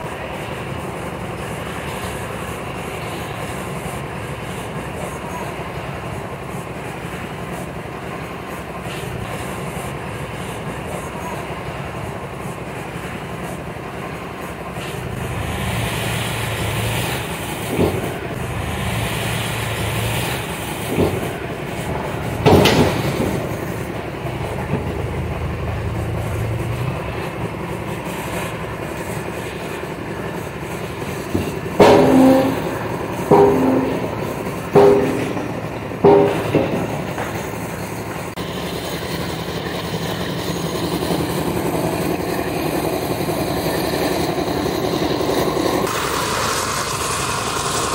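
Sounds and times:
truck engine running: 0:00.0 - 0:47.9
sharp knocks: 0:17.7 - 0:18.2, 0:20.8 - 0:25.0, 0:31.0 - 0:38.4.

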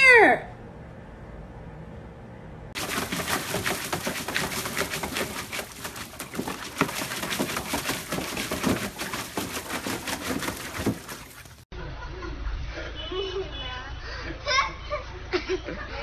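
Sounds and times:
dog splashing water with paws: 0:02.8 - 0:11.7.

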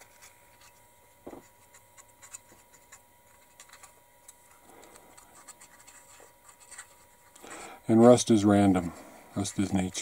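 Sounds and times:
paintbrush clicks and scratches: 0:00.0 - 0:07.5.

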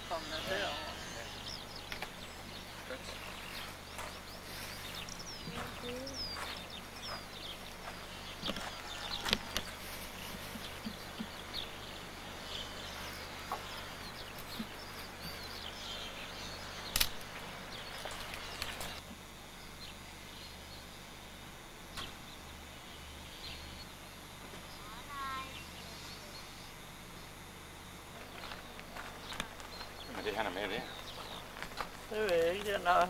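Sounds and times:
small birds chirping: 0:00.0 - 0:33.0
sharp click: 0:16.9 - 0:17.3.

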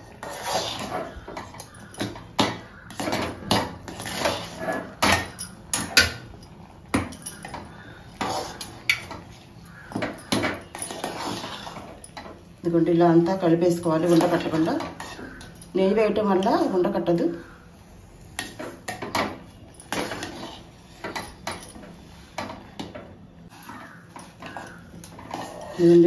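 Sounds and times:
spoon scraping and clinking on pot: 0:00.0 - 0:12.6, 0:13.7 - 0:15.8, 0:18.4 - 0:22.9, 0:23.5 - 0:26.0.

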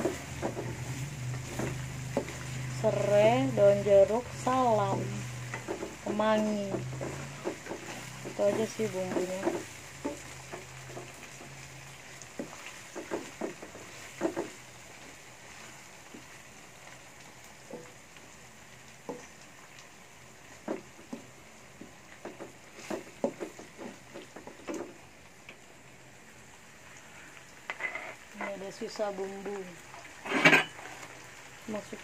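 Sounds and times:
spatula scraping and knocking wok: 0:00.0 - 0:16.4, 0:20.6 - 0:25.0, 0:27.6 - 0:31.1
faint sizzle of frying: 0:00.0 - 0:32.0.

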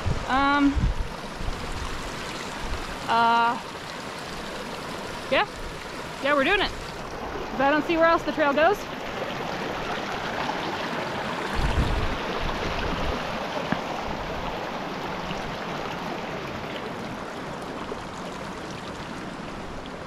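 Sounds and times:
stream flowing over rocks: 0:00.0 - 0:20.0.

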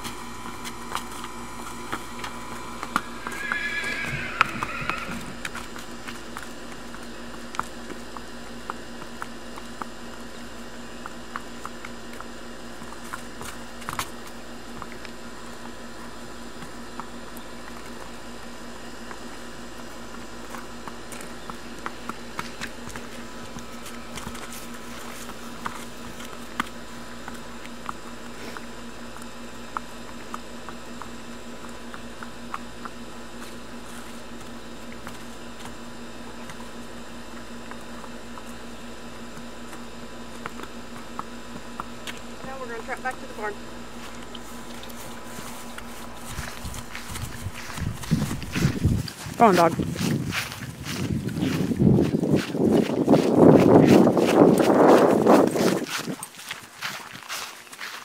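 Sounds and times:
hooves clicking on concrete: 0:00.0 - 0:58.0
steady low hum: 0:00.0 - 0:58.0.

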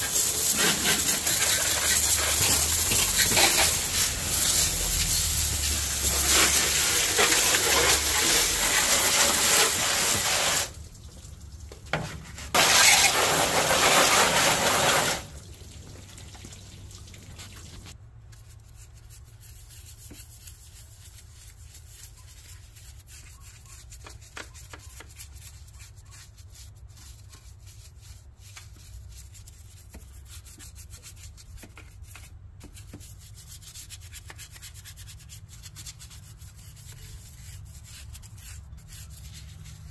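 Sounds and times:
brush scrubbing engine: 0:00.0 - 0:10.8, 0:12.6 - 0:15.4
water spray hitting engine: 0:00.0 - 0:11.4, 0:12.5 - 0:18.0.

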